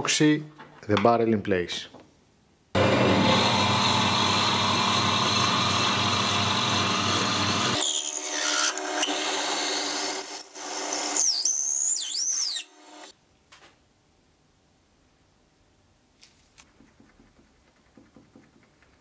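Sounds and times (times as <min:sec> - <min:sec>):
lathe motor hum: 0:02.8 - 0:07.8.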